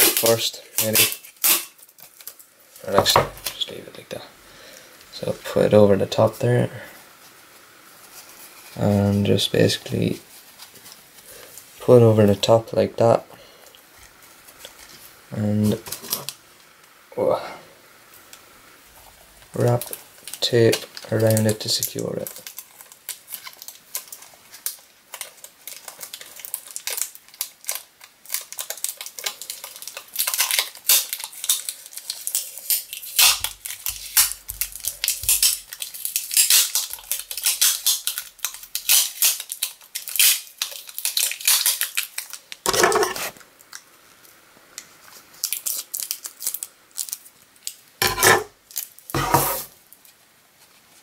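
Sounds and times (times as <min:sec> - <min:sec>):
packing tape ripping off roll: 0:00.0 - 0:03.7, 0:19.6 - 0:43.8, 0:45.3 - 0:50.1.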